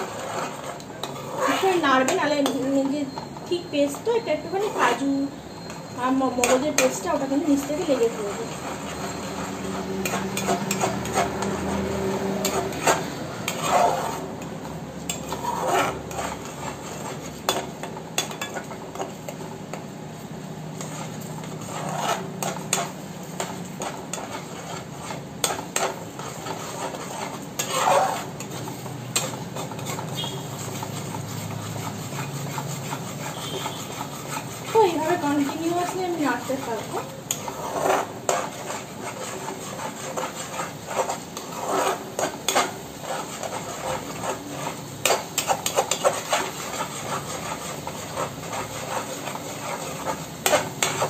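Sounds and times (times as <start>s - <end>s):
metal spatula scraping pan: 0.0s - 51.0s
spatula clinking against pan: 2.0s - 3.4s, 6.4s - 7.0s.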